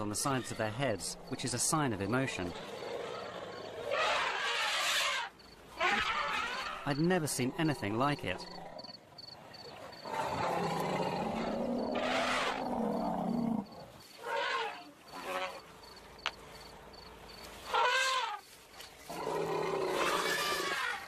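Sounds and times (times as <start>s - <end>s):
elephants higher calls: 0.0s - 8.6s, 10.0s - 15.6s, 17.6s - 18.5s, 19.1s - 21.0s
elephants rumbling roar: 2.4s - 6.8s, 10.0s - 15.6s, 19.1s - 21.0s.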